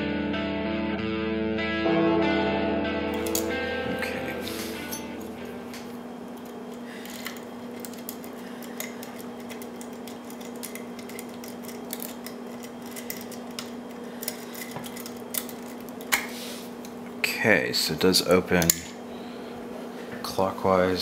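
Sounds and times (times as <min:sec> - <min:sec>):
steady low hum: 0:01.8 - 0:21.0
lock pick clicking against pins: 0:06.4 - 0:16.2, 0:18.6 - 0:18.9.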